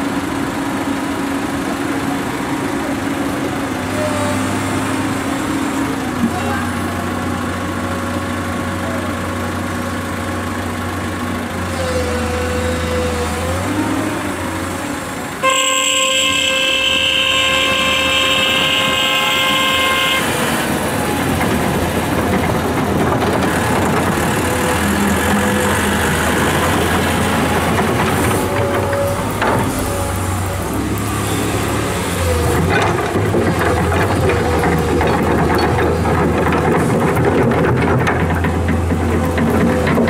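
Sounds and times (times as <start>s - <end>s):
diesel engines running: 0.0s - 40.0s
truck tyres on dirt: 10.2s - 40.0s
loud vehicle horn: 15.4s - 20.8s.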